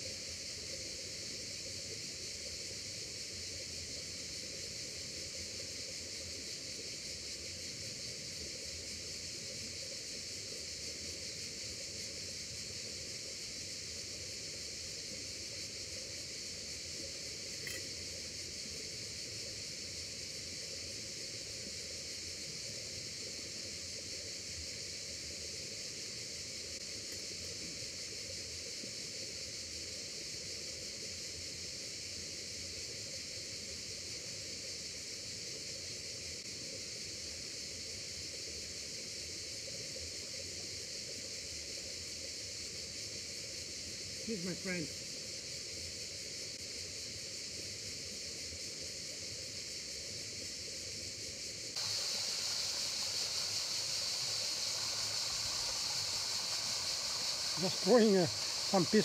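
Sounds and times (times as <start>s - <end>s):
flowing river water: 51.8s - 59.0s.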